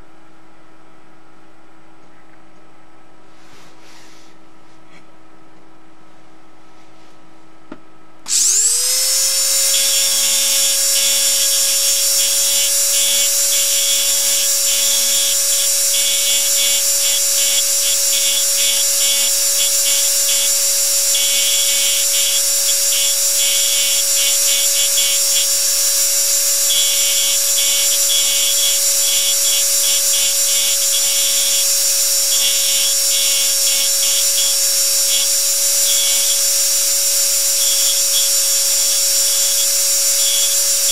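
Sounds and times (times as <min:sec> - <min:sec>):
engraving machine whine: 0:08.2 - 0:40.9.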